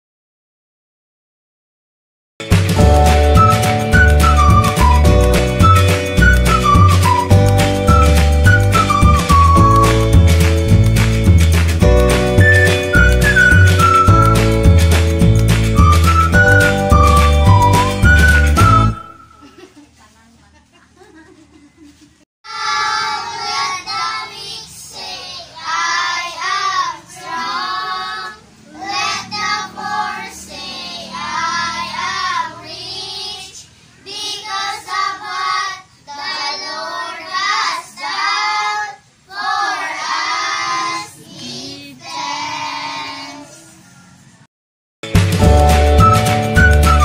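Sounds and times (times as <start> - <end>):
children singing: 22.5 - 43.7.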